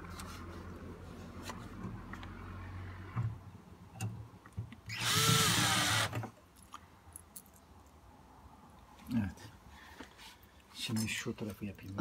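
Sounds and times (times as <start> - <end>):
cordless drill driving screw: 4.9 - 6.2.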